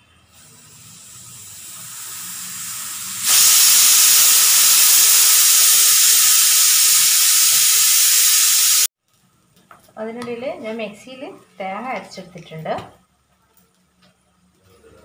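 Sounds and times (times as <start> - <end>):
steam hissing: 0.0 - 8.9.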